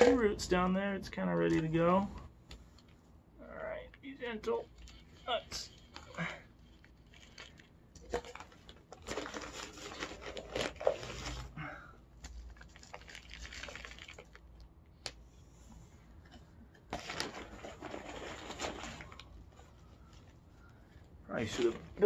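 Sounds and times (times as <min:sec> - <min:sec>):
plastic crinkling: 0:04.6 - 0:11.5, 0:12.2 - 0:14.7, 0:16.8 - 0:22.0.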